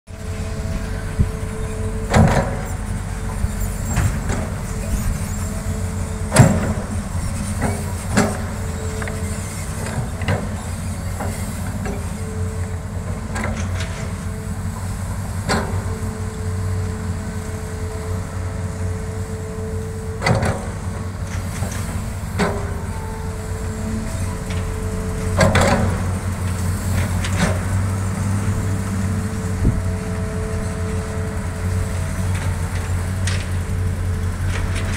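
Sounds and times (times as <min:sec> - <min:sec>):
excavator engine running: 0:00.1 - 0:34.9
excavator bucket clank: 0:06.3 - 0:09.2, 0:25.2 - 0:27.6.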